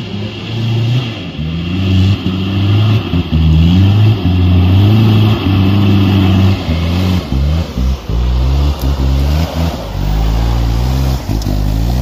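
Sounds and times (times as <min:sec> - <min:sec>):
engine revving under load: 0:00.0 - 0:12.0.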